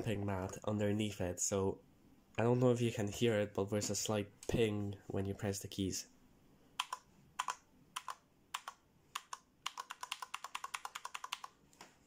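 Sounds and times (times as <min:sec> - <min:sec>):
mechanical keyboard keystrokes: 0:06.8 - 0:11.5.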